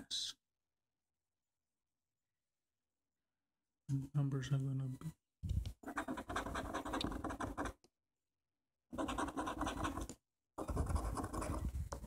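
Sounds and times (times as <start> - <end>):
coin scratching lottery ticket: 5.8 - 7.8, 8.9 - 11.6.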